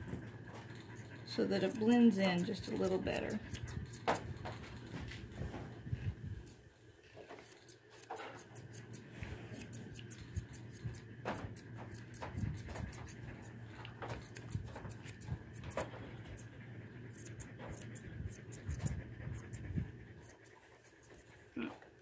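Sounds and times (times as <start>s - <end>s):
steady low hum: 0.0s - 22.0s
grooming shears snipping: 0.9s - 5.2s, 7.2s - 21.4s.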